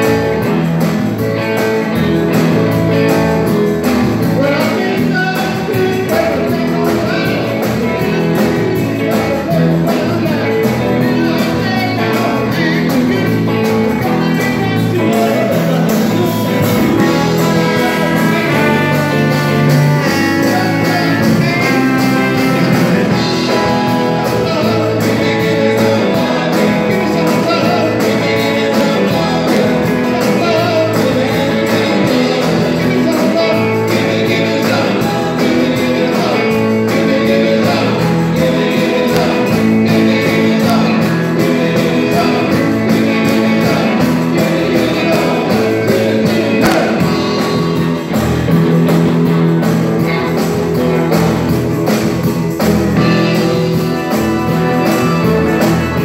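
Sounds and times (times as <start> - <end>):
drums: 0.0 - 56.0
electric guitar: 0.0 - 56.0
keyboard: 0.0 - 56.0
person singing: 0.0 - 56.0
trombone: 16.2 - 24.8.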